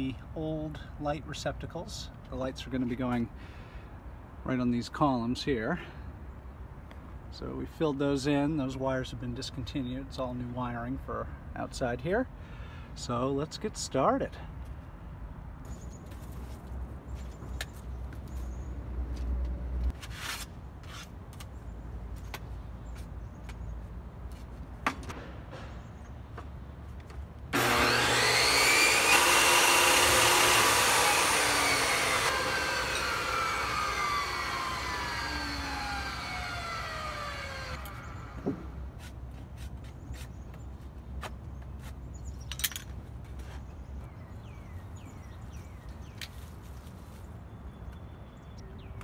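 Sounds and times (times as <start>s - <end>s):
saw blade spinning down: 27.6s - 38.3s
table saw whining: 27.6s - 38.4s.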